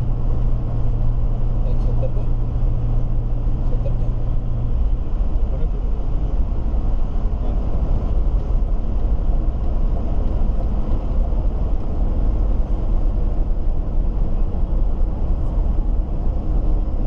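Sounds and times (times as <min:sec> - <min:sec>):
car road noise at highway speed: 0:00.0 - 0:17.0.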